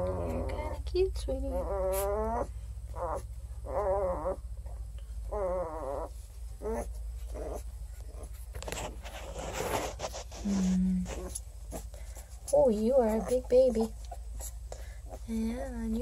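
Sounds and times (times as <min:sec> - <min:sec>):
puppy whining: 0:00.0 - 0:16.0
puppy squeaks: 0:01.5 - 0:04.4.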